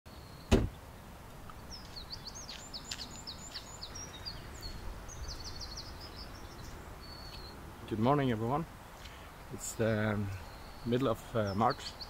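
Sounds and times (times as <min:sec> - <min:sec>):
songbird singing with trill: 0:00.1 - 0:00.6, 0:01.5 - 0:09.1, 0:09.7 - 0:12.0
low outdoor background: 0:00.1 - 0:12.0
loud thump: 0:00.5 - 0:00.8.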